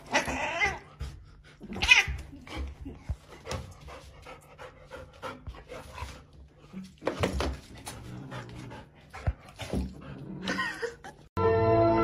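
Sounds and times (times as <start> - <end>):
dog panting: 2.4 - 6.7.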